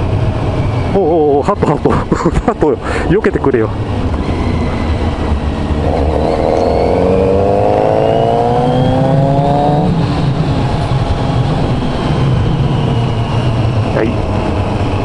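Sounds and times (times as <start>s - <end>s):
low wind rumble: 0.0s - 15.0s
motorcycle engine accelerating: 3.8s - 15.0s.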